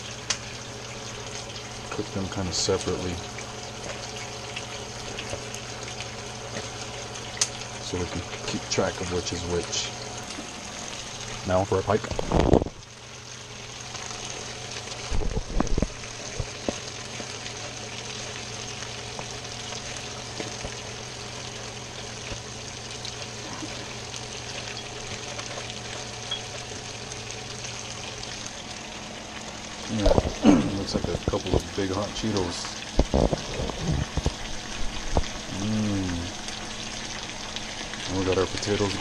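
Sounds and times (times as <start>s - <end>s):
food sizzling in oil: 0.0s - 39.0s.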